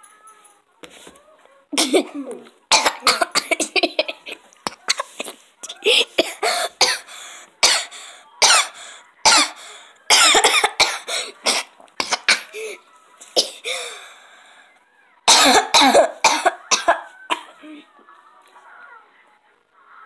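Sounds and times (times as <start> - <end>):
child making cough-like vocal bursts: 1.8 - 7.0, 15.3 - 17.5.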